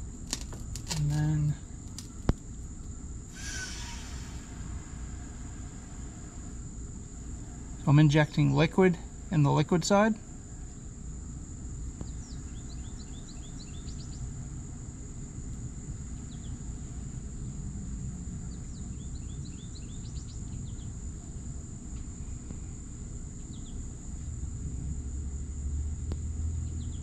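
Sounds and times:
low steady rumble: 0:00.0 - 0:27.0
high-pitched insect drone: 0:03.2 - 0:09.6
bird chirping: 0:12.0 - 0:14.3.

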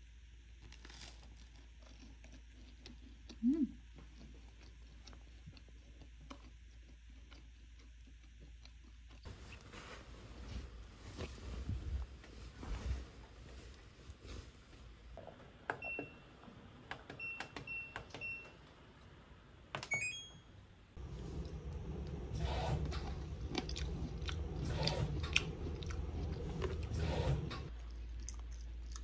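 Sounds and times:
low steady hum: 0:00.0 - 0:29.0
washing machine control beeps: 0:15.7 - 0:16.4, 0:17.0 - 0:18.7, 0:19.8 - 0:20.6.

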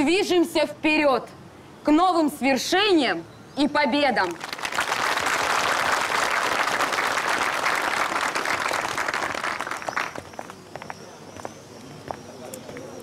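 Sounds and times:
crowd applauding: 0:04.3 - 0:10.7.

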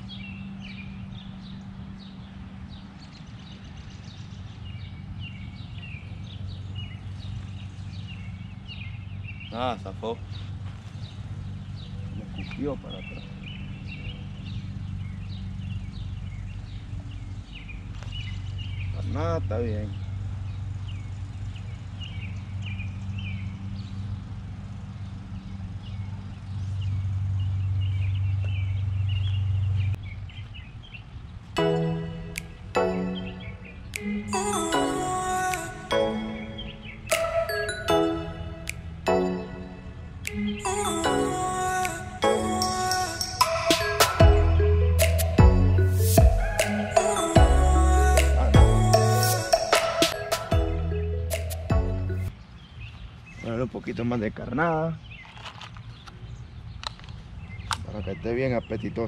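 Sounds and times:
low motor hum: 0:00.0 - 0:35.0, 0:44.2 - 0:49.5, 0:50.6 - 0:52.3
birds chirping: 0:00.0 - 0:59.0
steady low hum: 0:37.9 - 0:52.3.

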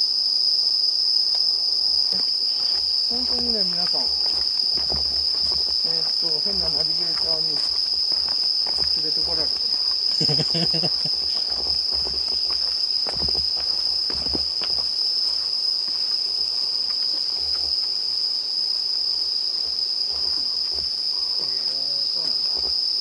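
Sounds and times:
night insects chirring: 0:00.0 - 0:23.0
footsteps: 0:01.7 - 0:18.0, 0:18.7 - 0:22.8.

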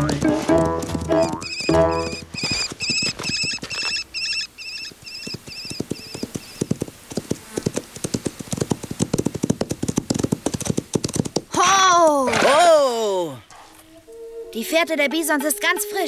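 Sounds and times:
cartoon hooves galloping: 0:00.0 - 0:11.7
high wavering chirp: 0:01.2 - 0:06.6.

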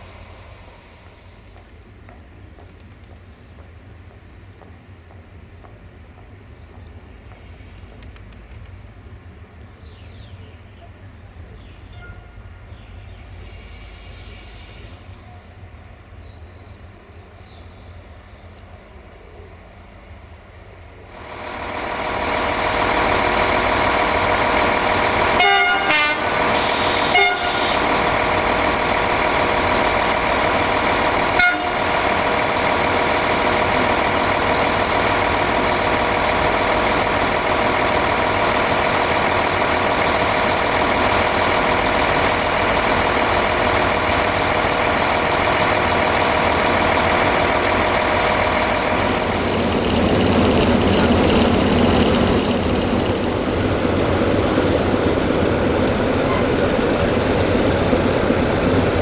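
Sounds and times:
diesel locomotive engine running: 0:00.0 - 0:59.0
locomotive horn blasts: 0:11.9 - 0:12.5, 0:25.3 - 0:27.9, 0:31.3 - 0:31.9.

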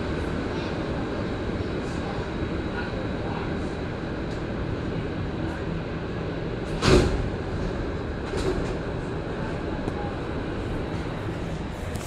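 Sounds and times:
train rumbling to a stop: 0:00.0 - 0:12.0.

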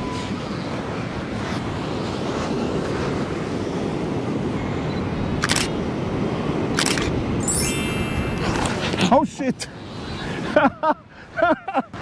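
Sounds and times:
camera shutter clicking: 0:05.4 - 0:05.7, 0:06.8 - 0:07.1.

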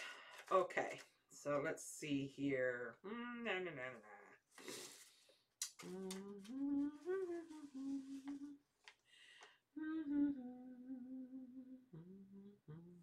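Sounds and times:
woman humming: 0:05.8 - 0:08.6, 0:09.8 - 0:13.0.

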